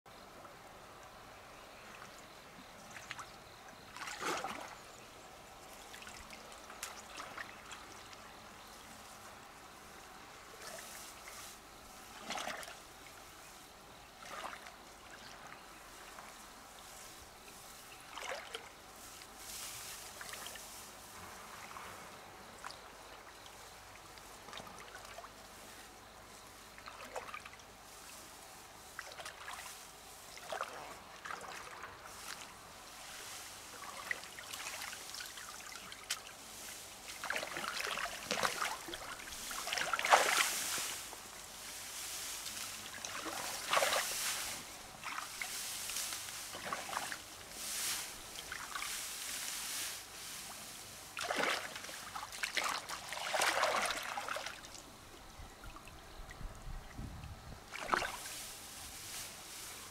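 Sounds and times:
river water trickling: 0.1 - 59.9
small water splashes and drips: 1.8 - 4.8, 5.6 - 8.4, 10.5 - 13.3, 14.2 - 16.3, 18.0 - 19.3, 22.6 - 25.5, 26.7 - 28.2, 29.0 - 29.7, 30.3 - 32.6, 33.2 - 41.3, 42.2 - 49.0, 51.2 - 58.4.

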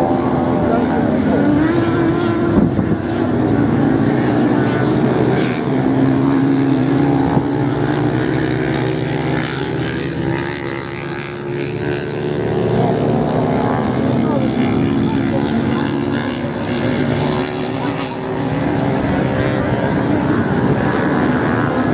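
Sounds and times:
motorcycle engines revving: 0.0 - 21.9.

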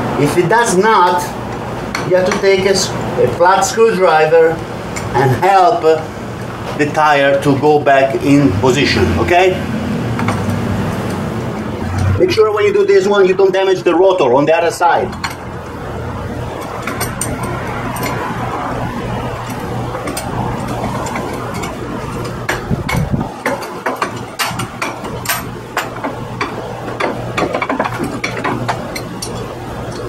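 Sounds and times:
light clicks and knocks: 19.4 - 30.0.

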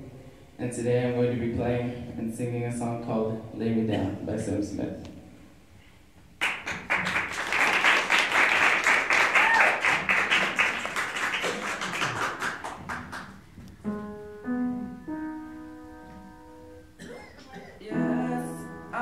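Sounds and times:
piano playing sustained chords: 0.0 - 4.8, 13.8 - 19.0
audience applauding: 6.4 - 13.4.

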